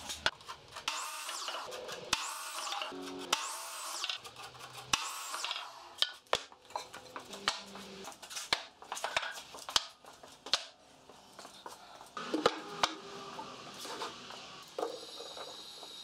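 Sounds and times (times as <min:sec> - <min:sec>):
power saw whine: 0:12.2 - 0:16.0.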